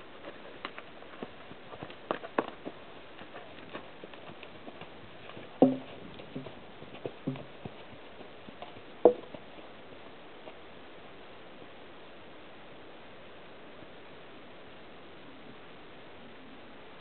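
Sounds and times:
horse hooves on sand: 0.0 - 11.8.

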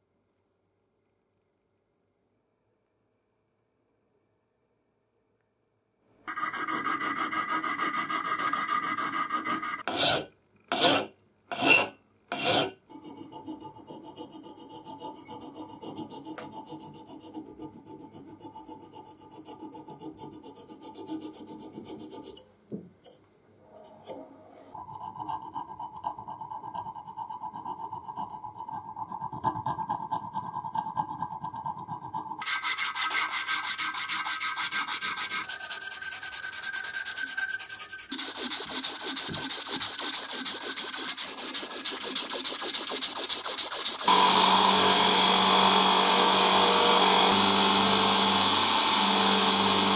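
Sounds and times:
abrasive paper sanding: 6.3 - 10.1, 32.4 - 49.9
hand file rasping on brass: 6.3 - 22.4, 24.9 - 49.9.

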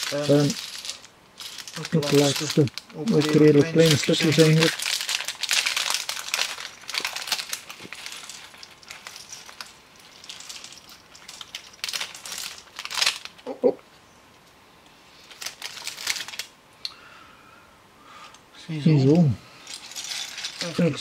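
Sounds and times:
plastic bag crinkling: 0.0 - 13.4, 15.2 - 16.5, 19.6 - 21.0
plastic pieces spilling: 0.0 - 13.4, 15.3 - 16.5, 19.7 - 21.0.

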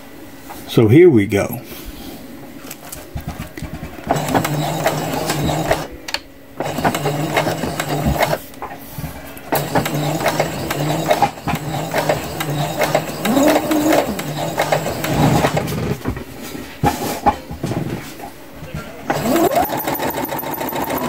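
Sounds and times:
sewing machine stitching: 3.2 - 5.9, 6.6 - 8.4, 9.5 - 16.0, 19.1 - 21.0.

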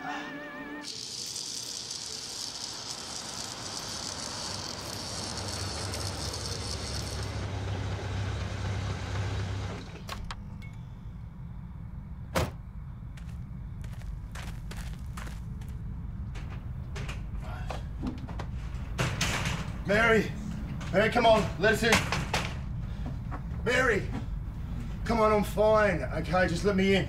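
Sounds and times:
car engine running: 0.9 - 16.8.

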